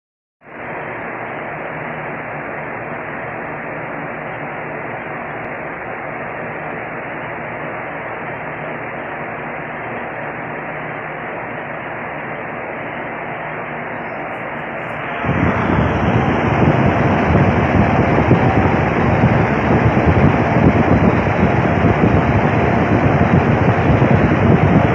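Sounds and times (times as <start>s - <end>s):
faint hum: 0.5s - 24.9s
steady static hiss: 0.5s - 24.9s.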